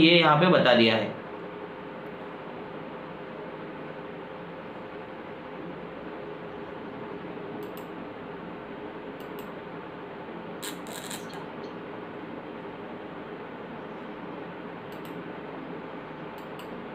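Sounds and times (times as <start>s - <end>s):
faint hum: 0.0s - 16.9s
microphone hiss: 0.0s - 16.9s
light clicks: 14.9s - 15.2s.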